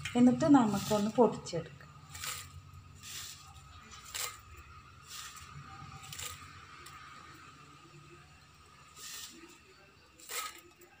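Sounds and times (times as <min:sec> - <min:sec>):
leaves rustling into steel jar: 0:00.0 - 0:07.0, 0:08.9 - 0:11.0.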